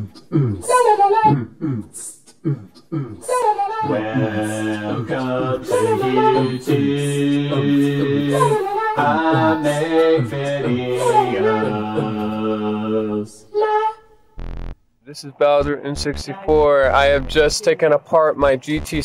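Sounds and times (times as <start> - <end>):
a cappella voices singing chords: 0.0 - 13.9.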